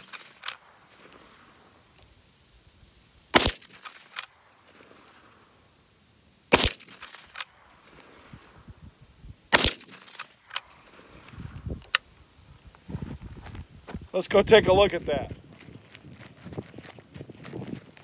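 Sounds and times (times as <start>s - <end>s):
rifle shots: 3.3s - 4.8s, 6.5s - 8.0s, 9.5s - 11.0s.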